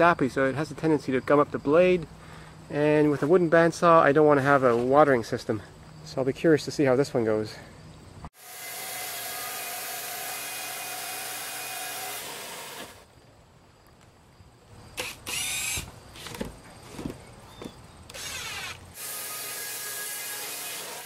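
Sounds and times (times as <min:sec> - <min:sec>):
band saw cutting log: 0:08.4 - 0:13.0, 0:15.0 - 0:15.9, 0:18.1 - 0:21.0
knocks and handling sounds: 0:16.1 - 0:18.2.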